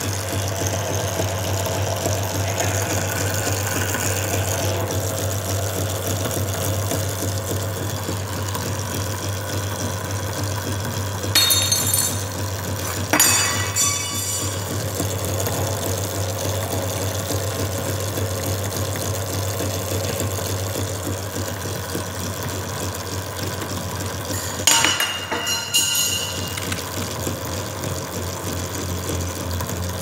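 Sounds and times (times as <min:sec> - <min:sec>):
metallic clinks: 0:11.4 - 0:14.9, 0:24.3 - 0:26.9.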